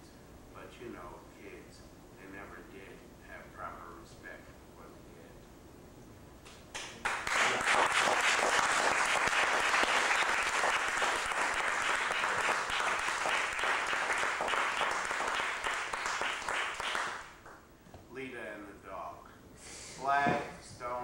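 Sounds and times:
audience applauding: 6.8s - 17.6s.

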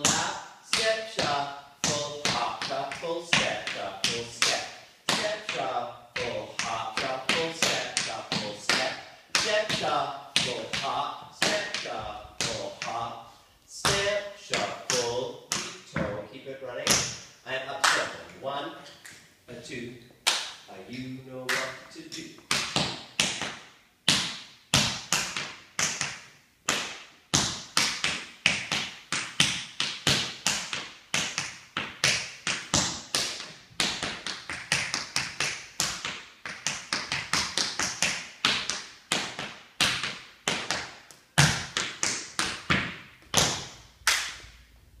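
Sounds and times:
tap shoes on wooden floor: 22.4s - 43.8s.

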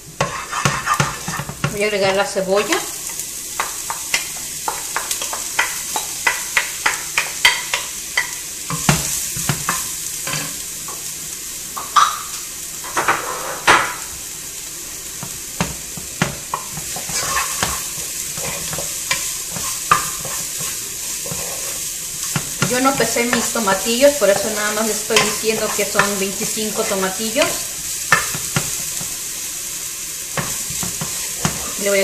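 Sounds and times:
onion frying in oil: 0.0s - 32.0s
stirring against pot: 0.2s - 2.8s, 15.6s - 29.1s, 30.4s - 32.0s
wooden spoon tapping pot: 3.6s - 9.8s.

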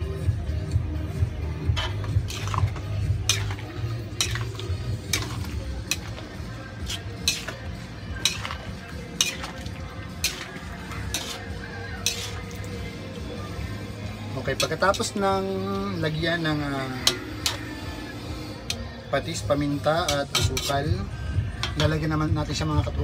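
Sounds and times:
metal spatula clanking in wok: 1.6s - 12.8s, 14.5s - 15.2s, 16.9s - 17.8s, 19.8s - 20.9s, 21.6s - 22.1s
liquid simmering: 1.6s - 15.2s.

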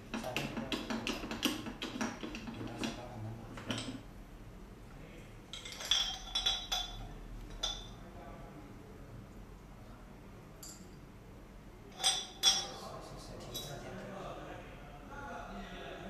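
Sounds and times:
metal parts knocking and scraping: 5.5s - 7.0s.

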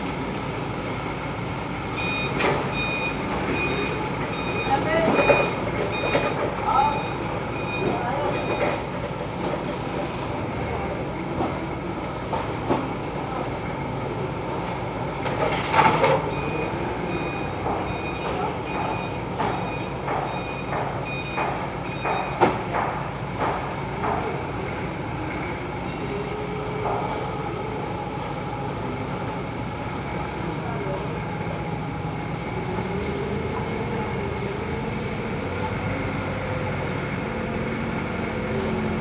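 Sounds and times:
forklift running: 0.0s - 39.0s
reversing alarm beeping: 1.9s - 9.0s, 15.8s - 22.8s, 25.3s - 27.9s.

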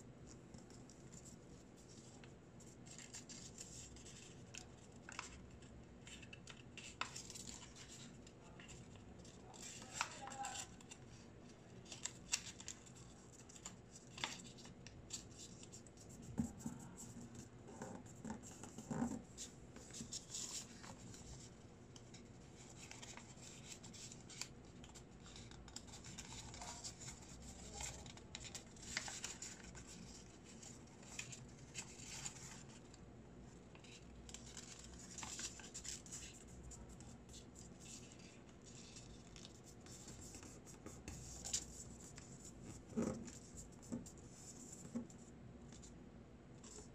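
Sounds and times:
paper rustling and crinkling: 18.0s - 33.0s, 33.7s - 45.9s.

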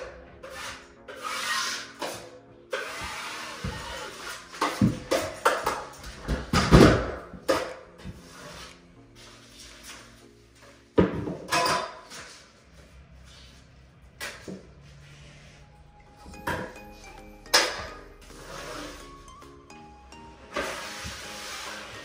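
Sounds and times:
tool scraping joint compound: 0.3s - 6.0s.

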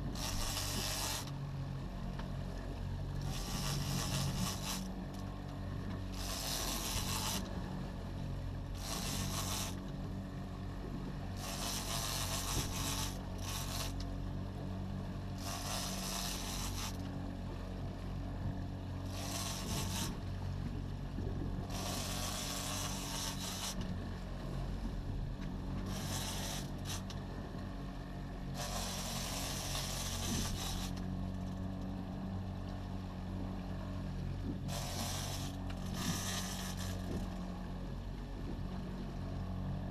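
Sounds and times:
boat engine humming: 0.0s - 39.9s.

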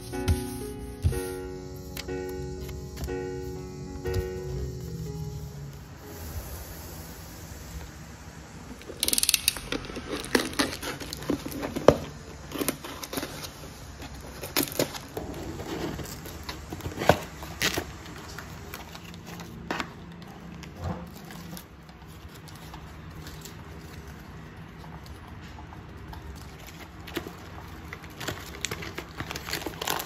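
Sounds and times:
cardboard and paper rustling: 9.9s - 30.0s
packing tape pulled off: 28.1s - 30.0s.

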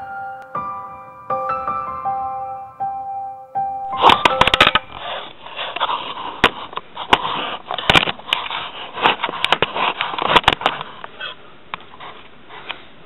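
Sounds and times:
camera handling rustling: 3.9s - 5.0s
sharp clicks and knocks: 3.9s - 5.0s.

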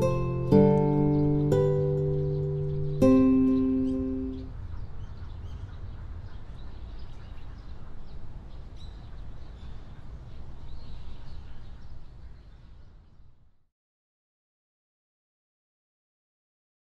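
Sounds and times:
bird chirps: 0.0s - 13.3s.

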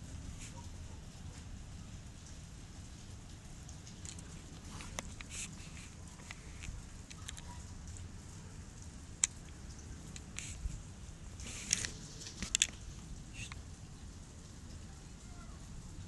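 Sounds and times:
hail hissing: 0.0s - 16.0s.

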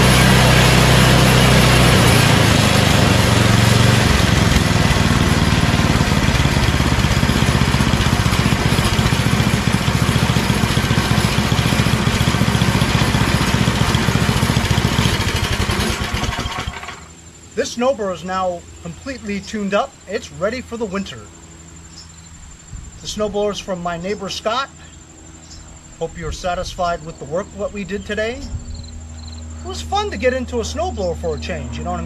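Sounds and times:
snowblower engine running: 0.0s - 17.2s.

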